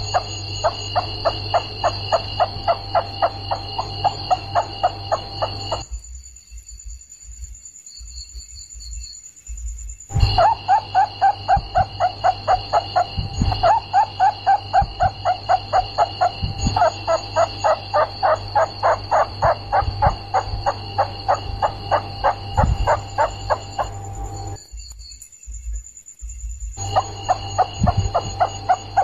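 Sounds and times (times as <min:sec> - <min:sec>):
rats squeaking: 0:00.0 - 0:05.8, 0:10.1 - 0:24.6, 0:26.8 - 0:29.0
low hum: 0:00.0 - 0:07.0, 0:10.1 - 0:24.9, 0:26.6 - 0:29.0
steady high whine: 0:00.0 - 0:07.5, 0:09.8 - 0:25.3, 0:26.5 - 0:29.0.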